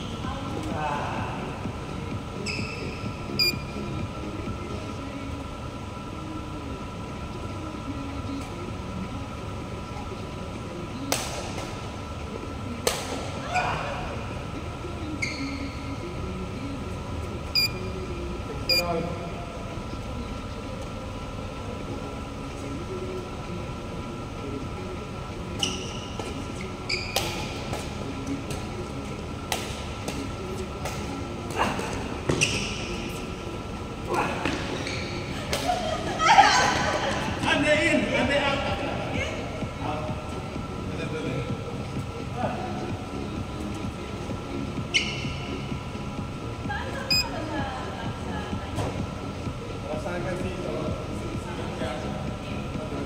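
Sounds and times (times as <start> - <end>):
sports hall hum: 0.0 - 53.0
sneaker squeaks on court: 2.4 - 3.5, 15.2 - 15.8, 32.3 - 33.0, 44.9 - 45.5.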